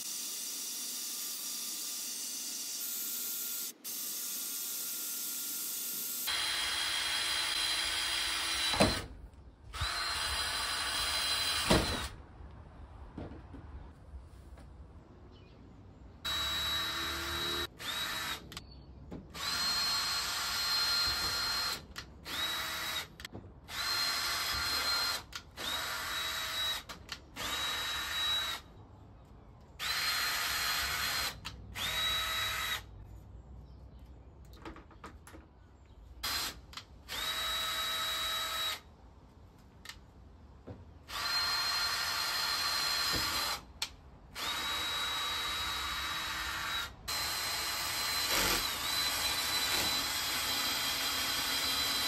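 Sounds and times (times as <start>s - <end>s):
cordless drill drilling plastic pipe: 0.0s - 9.1s, 9.8s - 12.1s, 16.3s - 18.6s, 19.4s - 28.6s, 29.8s - 32.9s, 36.2s - 38.8s, 41.1s - 43.7s, 44.4s - 52.0s.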